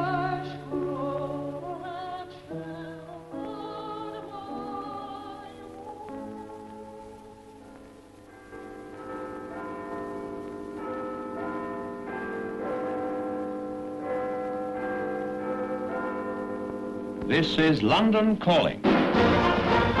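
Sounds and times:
clock tower bells chiming: 0:08.3 - 0:18.6.

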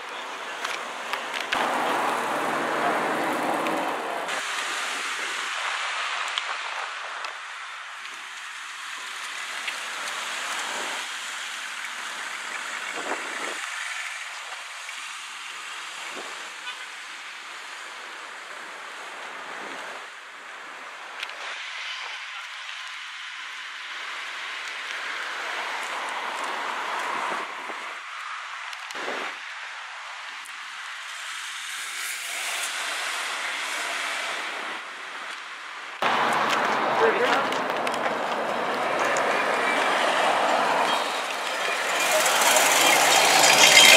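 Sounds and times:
street traffic noise: 0:00.0 - 0:43.9
car exhaust rushing: 0:01.5 - 0:04.4, 0:37.9 - 0:43.9
steady hiss: 0:04.3 - 0:18.7.

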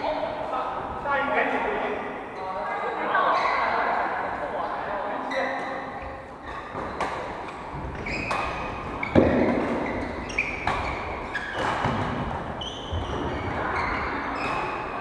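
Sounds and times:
shoes squeaking on wooden court: 0:03.2 - 0:03.8, 0:05.2 - 0:15.0
rackets hitting shuttlecocks: 0:06.7 - 0:13.1.

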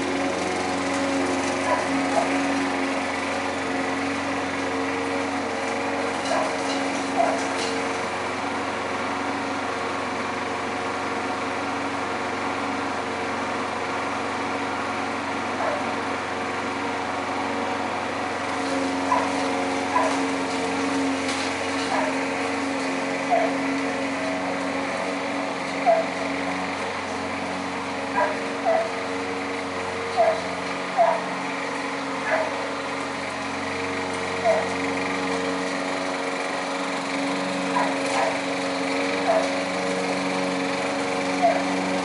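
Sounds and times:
lawn mower engine running: 0:00.0 - 0:42.0.

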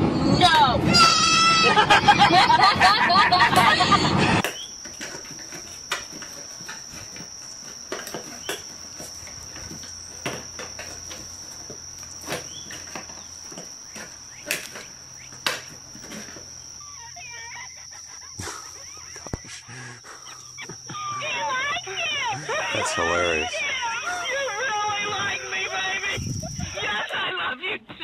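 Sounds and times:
paws tapping cardboard box: 0:04.4 - 0:16.5.

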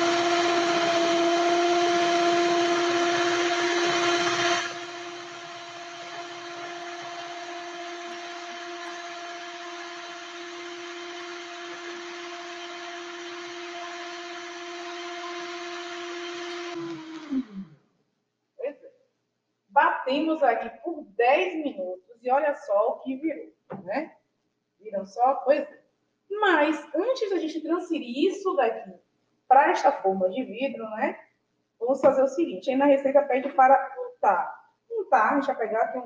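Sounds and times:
stand mixer whipping: 0:00.0 - 0:17.4
mixer motor winding down: 0:00.0 - 0:17.8.

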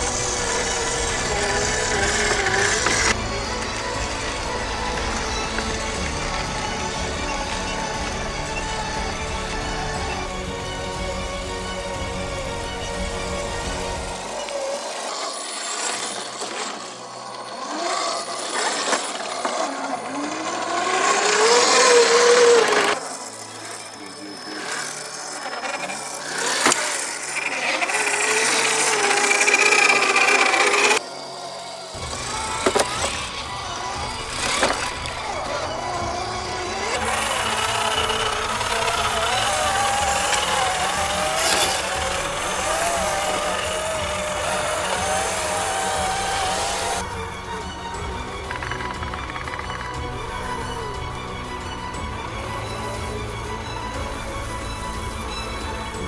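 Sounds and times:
electric motor and gearbox whining: 0:00.0 - 0:56.0
tyres clicking on stones: 0:36.6 - 0:47.0.

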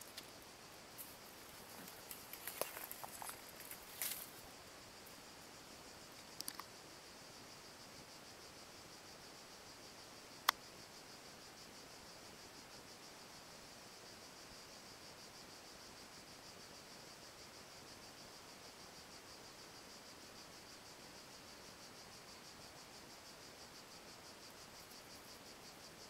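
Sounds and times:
insects chirring: 0:00.0 - 0:26.0
faint ticks: 0:01.0 - 0:04.4, 0:06.1 - 0:06.8, 0:10.4 - 0:10.7.

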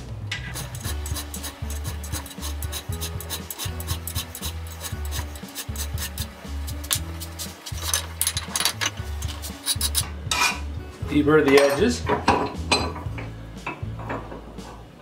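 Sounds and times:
background music with bass line: 0:00.0 - 0:15.0
hand file rasping on metal: 0:00.5 - 0:07.9, 0:09.2 - 0:10.1.

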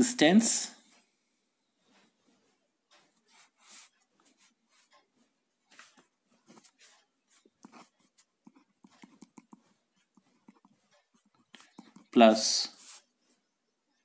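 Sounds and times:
ballpoint pen scratching on paper: 0:03.0 - 0:13.4.

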